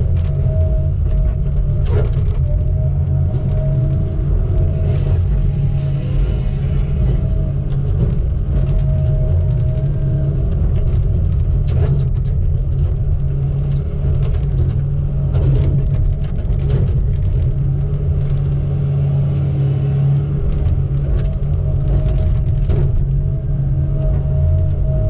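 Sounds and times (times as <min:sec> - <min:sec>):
diesel engine droning: 0:00.0 - 0:25.0
knocks and clanks: 0:20.4 - 0:24.8.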